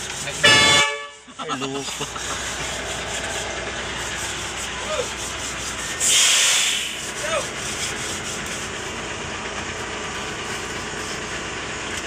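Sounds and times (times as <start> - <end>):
loud hiss: 3.4 - 7.2.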